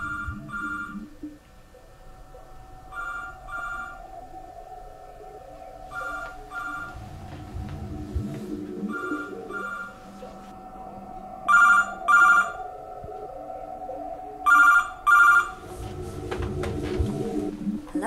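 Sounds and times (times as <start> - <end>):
telephone ringing: 0.0 - 1.2, 2.9 - 4.1, 8.9 - 10.0, 11.5 - 12.6, 14.5 - 15.6
steady low hum: 0.0 - 18.0.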